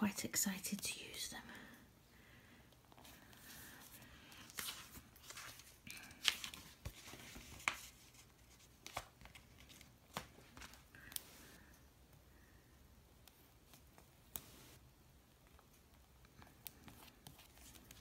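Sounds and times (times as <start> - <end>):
paper peeling and crinkling: 4.3 - 11.2.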